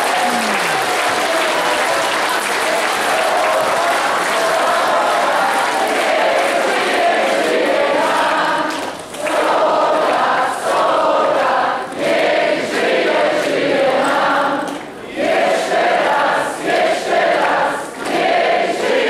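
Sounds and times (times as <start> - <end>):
group of people singing: 1.2 - 19.0.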